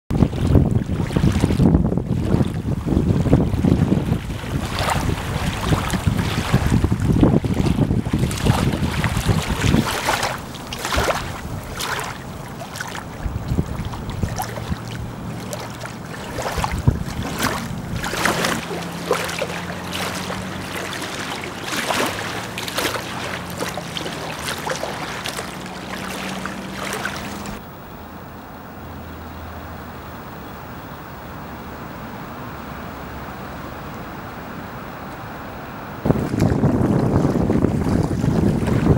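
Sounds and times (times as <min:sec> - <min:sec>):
small waves lapping on shore: 0:00.1 - 0:38.9
steady wash of water: 0:00.1 - 0:38.9
quiet outdoor background: 0:27.6 - 0:36.1.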